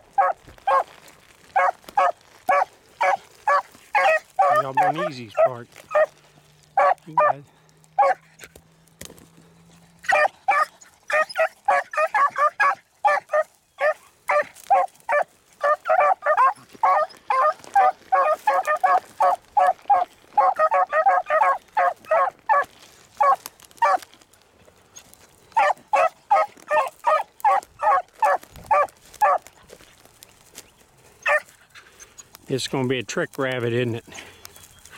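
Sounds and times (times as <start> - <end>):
beagles baying: 0.0 - 8.5, 9.4 - 24.2, 25.0 - 32.4.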